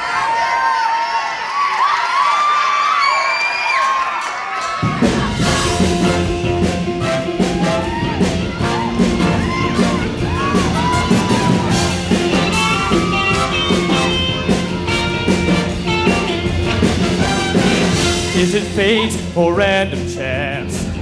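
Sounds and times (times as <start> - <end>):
upbeat band music: 4.7 - 21.0
steady drum beat: 4.8 - 21.0.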